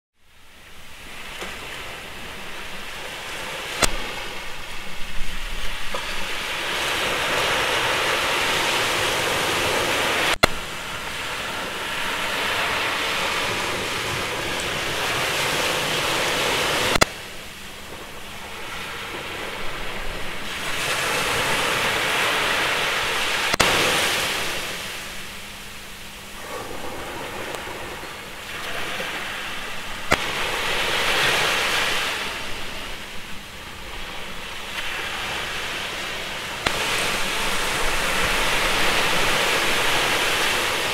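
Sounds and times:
rushing noise in waves: 0.2s - 40.9s
sharp click: 3.8s - 4.0s.

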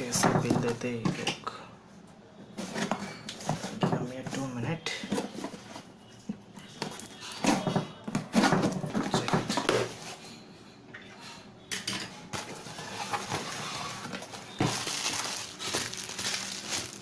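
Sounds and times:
bubble wrap crinkling: 12.5s - 17.0s.

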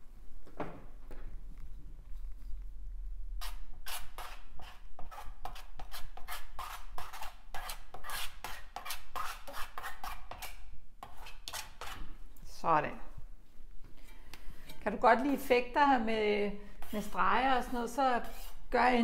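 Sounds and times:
palette knife scraping paint on canvas: 3.4s - 12.2s, 16.8s - 18.8s.

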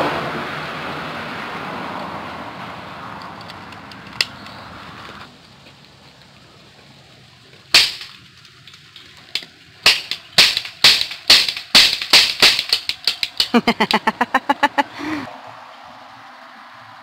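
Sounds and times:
toy cap gun cracks: 7.8s - 14.0s.

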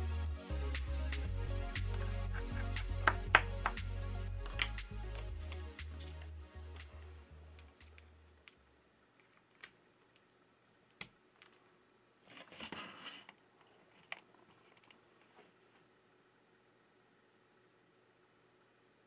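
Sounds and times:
background music: 0.0s - 8.3s
cable rustling: 4.4s - 15.9s.

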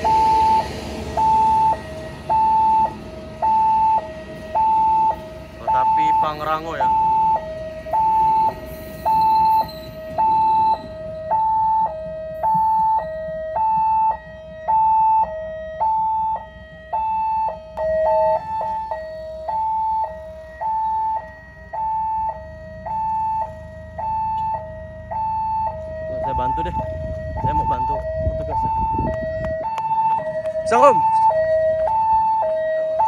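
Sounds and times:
level crossing two-tone alarm: 0.0s - 33.0s.

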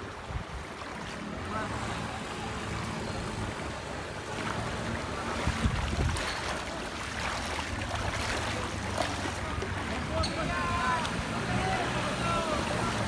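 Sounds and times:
wind rumble on microphone: 0.0s - 1.5s, 3.4s - 8.4s
water sloshing around wading legs: 0.0s - 2.0s, 2.6s - 13.0s
water splashes: 0.0s - 13.0s.

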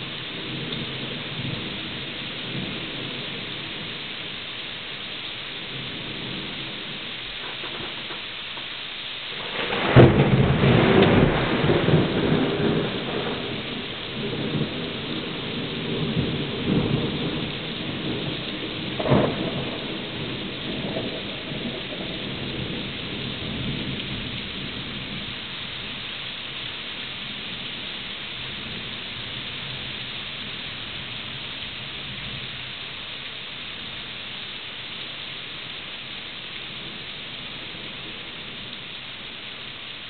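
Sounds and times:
steady rain: 0.0s - 40.0s
thunder cracking and rumbling: 5.7s - 8.3s, 9.3s - 25.3s.

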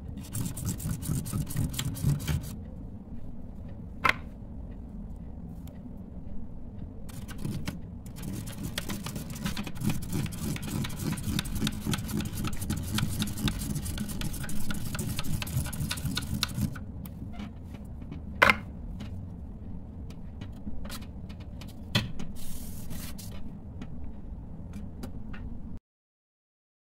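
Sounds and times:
pen scratching on paper: 0.2s - 2.6s, 7.1s - 16.8s.

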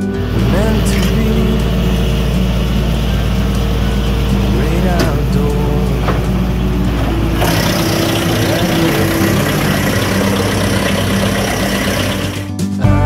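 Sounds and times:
wood chipper chipping branch: 0.0s - 12.5s
tractor engine running: 0.0s - 12.7s.

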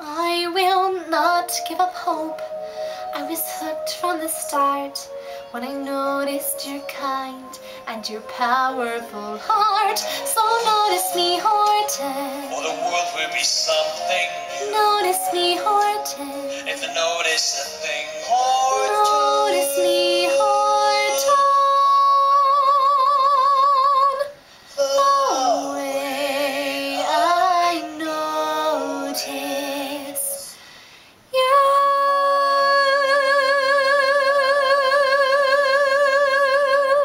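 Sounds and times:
woman singing with vibrato: 0.0s - 12.7s, 14.5s - 16.7s, 18.3s - 30.7s, 31.3s - 37.0s
low steady sung note: 2.4s - 22.8s, 24.6s - 31.5s.

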